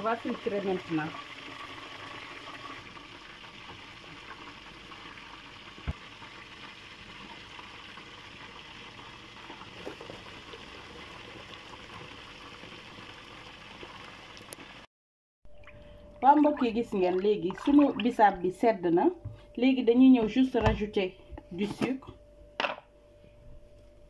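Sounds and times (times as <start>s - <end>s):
food sizzling in a pan: 0.0s - 14.9s.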